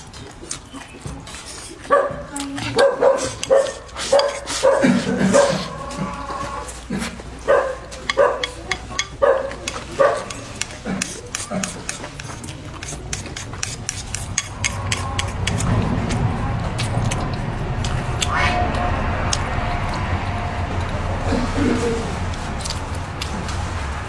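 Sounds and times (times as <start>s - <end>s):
wet chewing: 0.0s - 24.0s
dog barking: 1.9s - 5.8s, 7.4s - 10.5s.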